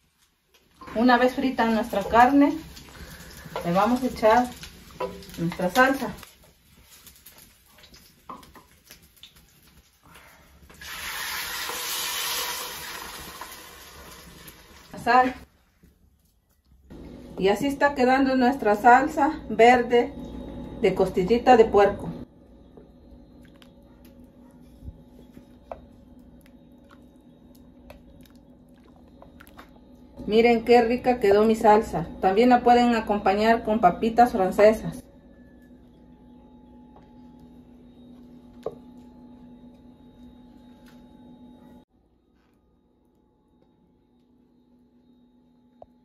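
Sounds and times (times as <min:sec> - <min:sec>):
meat frying: 0:00.0 - 0:15.2
salsa hissing in hot fat: 0:10.7 - 0:14.9
sauce squelching and popping: 0:26.3 - 0:29.8.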